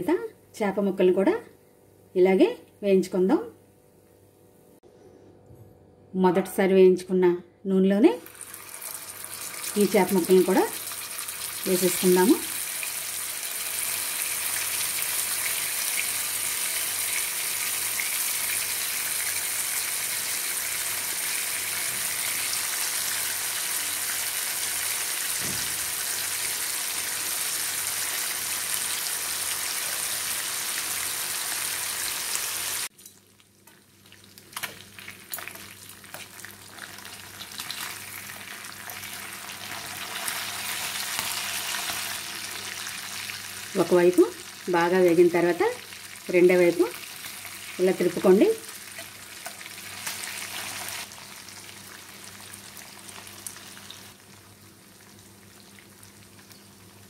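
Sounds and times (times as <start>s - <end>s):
fish sizzling in hot oil: 8.3s - 32.9s, 34.1s - 44.6s, 45.9s - 54.3s
oil crackles and pops: 33.2s - 39.0s.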